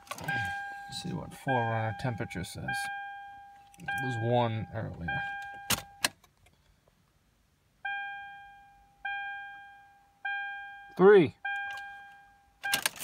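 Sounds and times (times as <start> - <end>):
car warning chime dings: 0.1 - 6.1, 7.8 - 13.0.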